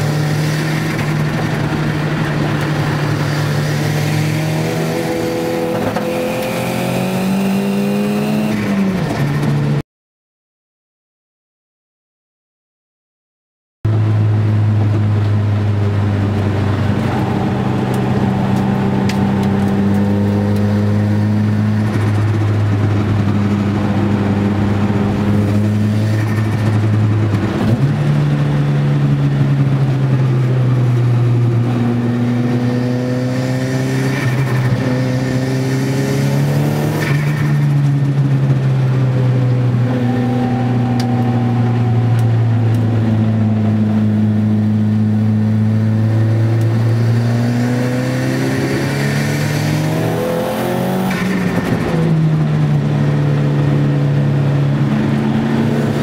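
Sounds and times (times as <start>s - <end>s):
car engine revving: 0.0s - 9.8s, 13.9s - 56.0s.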